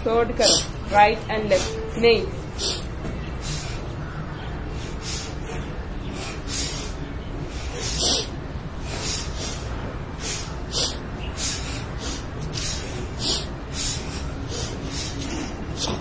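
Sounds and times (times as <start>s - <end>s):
sharp breaths through the nose: 2.6s - 3.9s, 4.7s - 16.0s.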